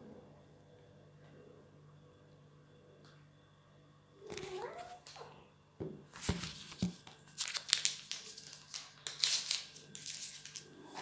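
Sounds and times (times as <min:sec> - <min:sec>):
rustling and crinkling: 0:06.1 - 0:11.0.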